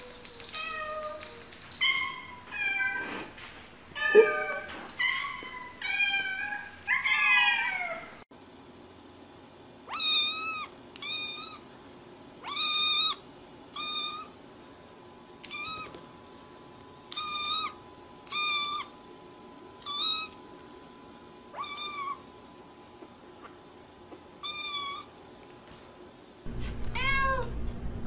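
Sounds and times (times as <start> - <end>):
kitten meowing: 9.9 - 11.6, 13.8 - 14.3, 15.4 - 15.9, 17.1 - 18.9, 21.6 - 22.2, 24.4 - 25.1, 26.9 - 27.5.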